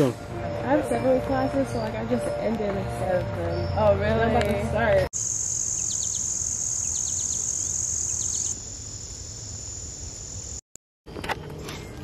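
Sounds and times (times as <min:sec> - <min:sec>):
crickets trilling: 0:05.2 - 0:10.6.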